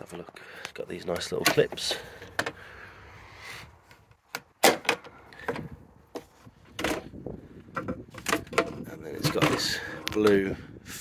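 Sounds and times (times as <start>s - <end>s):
plastic lid handled: 7.7s - 10.3s.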